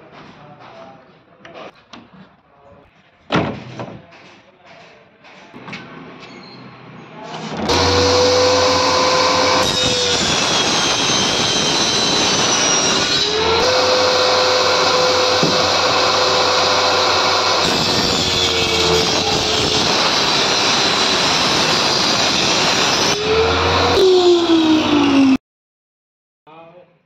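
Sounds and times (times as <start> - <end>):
table saw whining: 7.4 - 25.4.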